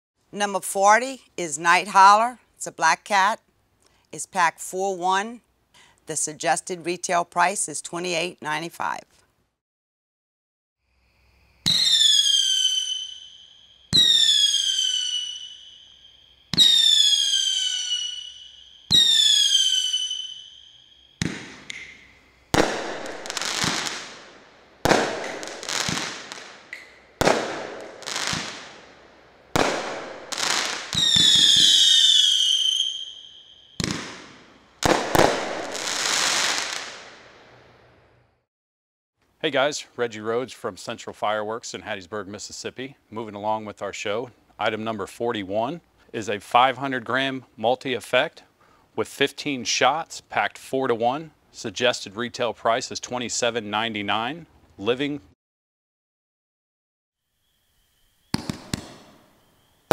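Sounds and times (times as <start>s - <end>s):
falling firework whistle: 11.6s - 24.2s, 29.6s - 37.0s, 57.2s - 59.9s
firework bursts: 11.6s - 37.6s, 58.2s - 59.9s
firework shots firing: 16.5s - 18.3s, 21.2s - 33.1s, 33.8s - 37.4s, 58.3s - 59.3s.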